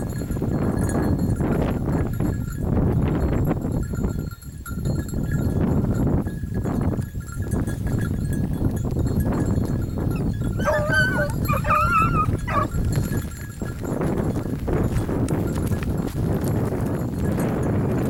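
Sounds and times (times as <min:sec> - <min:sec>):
small bells tinkling: 0:00.0 - 0:18.0
wind noise on microphone: 0:00.0 - 0:18.0
dog yelping: 0:10.6 - 0:12.7.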